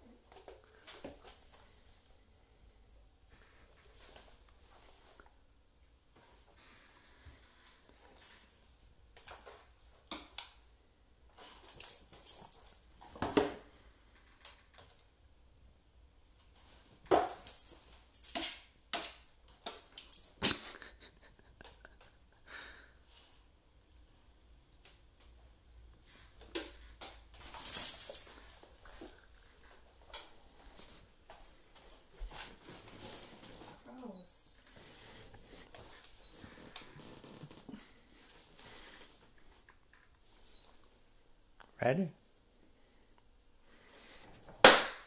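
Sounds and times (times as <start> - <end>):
metal collar tags jingling: 11.6 - 12.9, 17.1 - 18.6, 19.9 - 20.4, 27.4 - 28.7.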